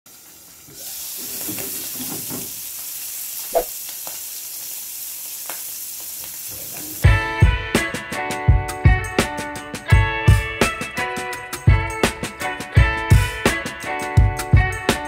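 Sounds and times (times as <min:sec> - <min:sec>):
meat sizzling in a frying pan: 0:00.1 - 0:07.4.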